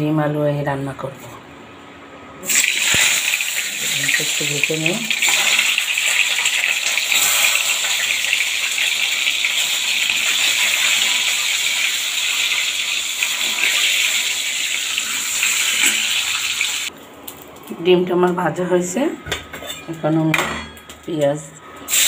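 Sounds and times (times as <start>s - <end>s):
eggs sizzling in hot oil: 2.4s - 17.5s.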